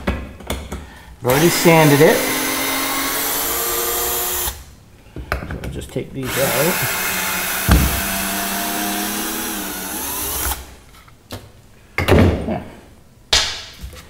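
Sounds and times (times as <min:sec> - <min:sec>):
cordless drill motor whine: 0:06.3 - 0:10.6
wooden boards knocking: 0:07.6 - 0:08.2.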